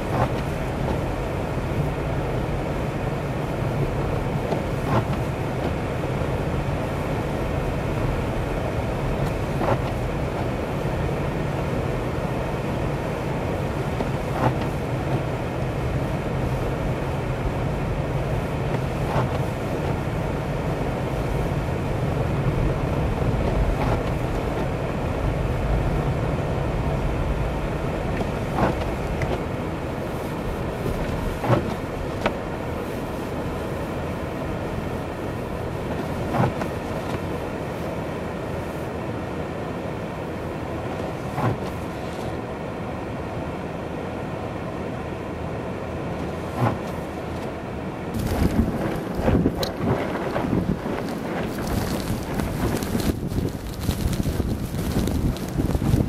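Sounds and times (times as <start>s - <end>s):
car engine and tyres rumbling: 0.0s - 56.0s.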